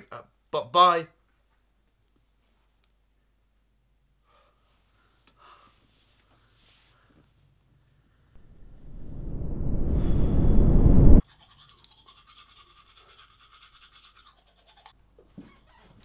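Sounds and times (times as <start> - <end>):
rush of noise: 8.4 - 11.2
toothbrush scrubbing teeth: 11.3 - 16.0.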